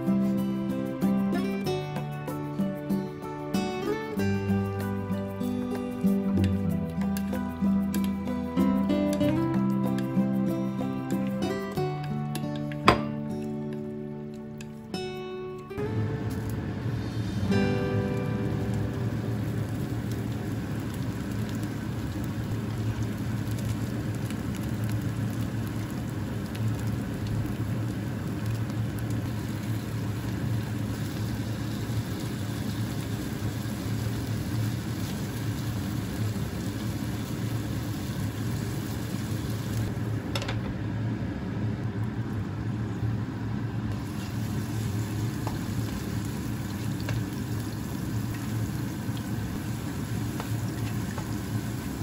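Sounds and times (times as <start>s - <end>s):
chicken sizzling in oil: 15.9s - 40.2s, 43.9s - 52.0s.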